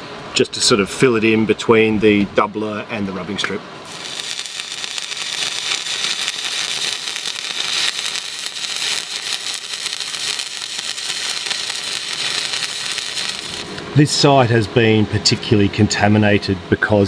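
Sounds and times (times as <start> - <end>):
arc welding: 3.8 - 14.0.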